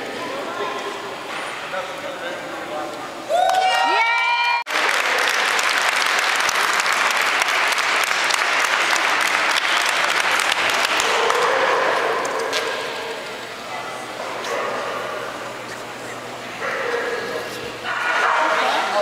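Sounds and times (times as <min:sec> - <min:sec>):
spectators clapping: 0:03.4 - 0:13.2.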